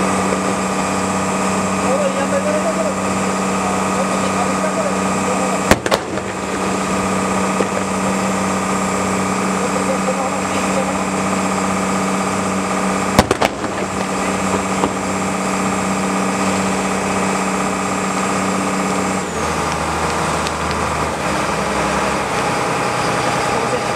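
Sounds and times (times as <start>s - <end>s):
boat engine running: 0.0s - 23.9s
firework bangs: 5.5s - 9.2s, 10.6s - 17.4s.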